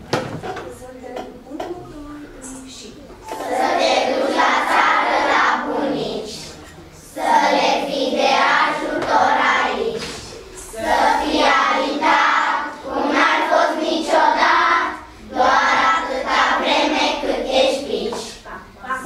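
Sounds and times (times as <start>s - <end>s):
young children singing: 3.2s - 19.0s.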